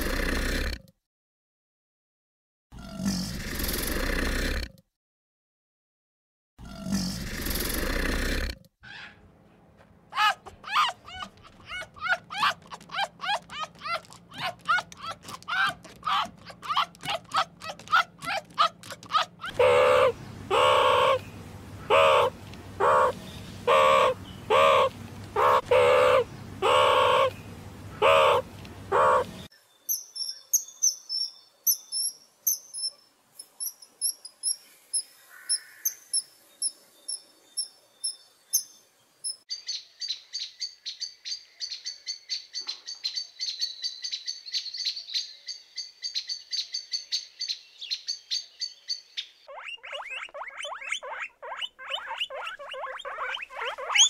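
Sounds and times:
low steady hum: 0:19.5 - 0:29.5
sunbird trilling song: 0:29.0 - 0:54.0
kingfisher high chirps: 0:49.2 - 0:54.0.

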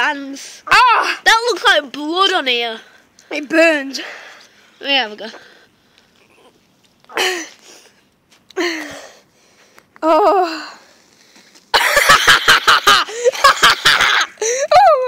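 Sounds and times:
person coughing or gasping: 0:07.1 - 0:07.6.

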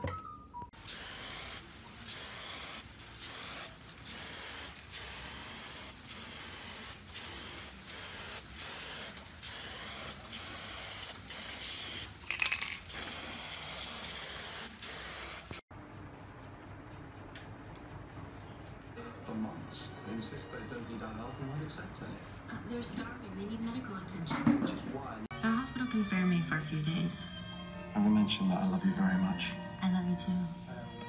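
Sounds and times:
spray paint can hissing: 0:00.9 - 0:15.6.

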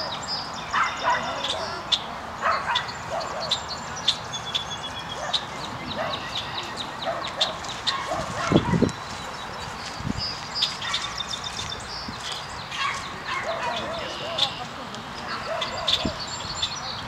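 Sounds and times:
birds chirping: 0:00.0 - 0:17.0
dog barking: 0:00.7 - 0:01.8, 0:02.4 - 0:03.6, 0:05.2 - 0:06.3, 0:07.0 - 0:08.9, 0:12.7 - 0:14.5, 0:15.3 - 0:16.2.

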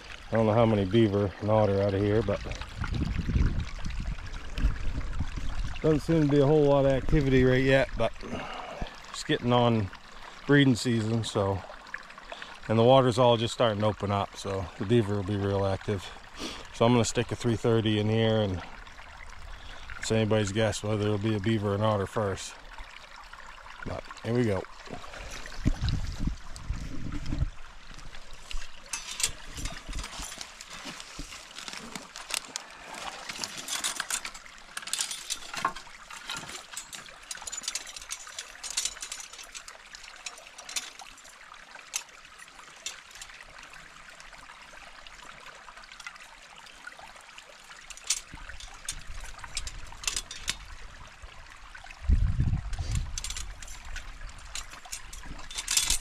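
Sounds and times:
brook water trickling: 0:00.0 - 0:56.0
small splashes: 0:22.1 - 0:56.0.

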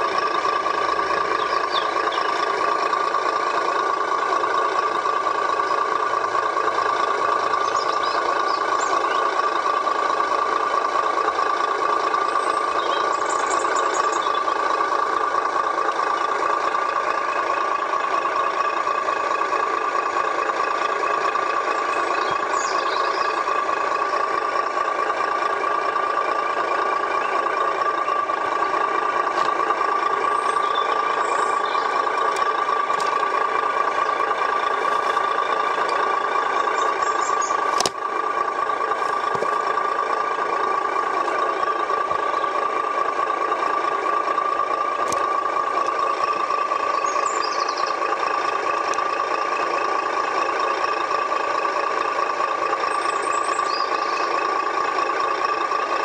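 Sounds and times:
diesel truck engine through small speaker: 0:00.0 - 0:56.0
click: 0:37.8 - 0:38.0.

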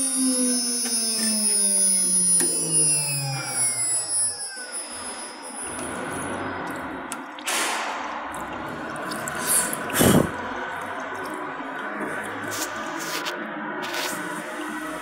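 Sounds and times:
coolant splashing over metal: 0:04.6 - 0:15.0
splash or knock: 0:07.4 - 0:10.4.

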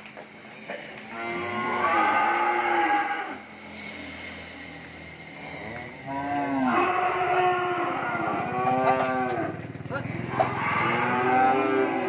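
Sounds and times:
cow mooing loudly: 0:01.1 - 0:03.5, 0:05.5 - 0:09.6, 0:10.3 - 0:12.0.

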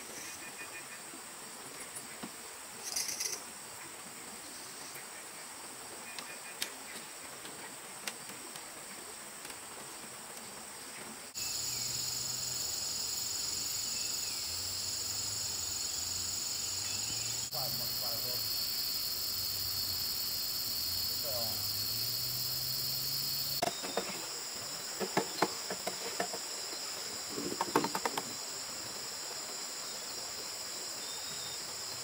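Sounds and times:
insect chorus buzzing: 0:01.8 - 0:03.6, 0:10.0 - 0:32.0.

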